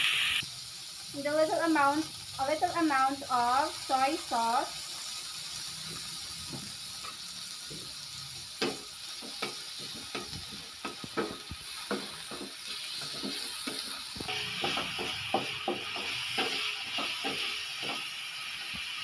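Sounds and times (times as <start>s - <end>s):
chicken sizzling in hot oil: 0.0s - 19.0s
wooden spatula scraping a pan: 9.2s - 18.8s.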